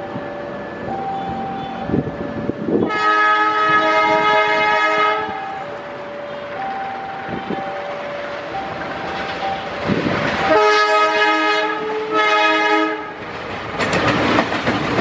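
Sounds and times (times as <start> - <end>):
locomotive engine running: 0.0 - 15.0
locomotive horn: 2.6 - 5.8, 10.4 - 13.2
wheels knocking on track: 13.2 - 15.0.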